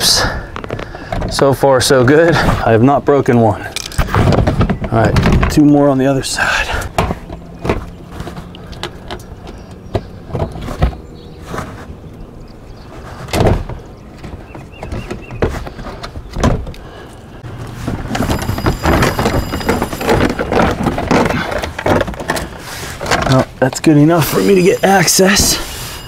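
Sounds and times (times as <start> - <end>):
plastic rustling and scraping: 17.5 - 26.0.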